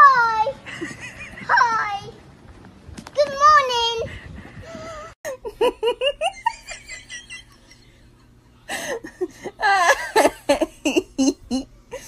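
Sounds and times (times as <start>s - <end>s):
person laughing: 0.7s - 1.5s, 4.2s - 7.9s, 8.7s - 12.0s.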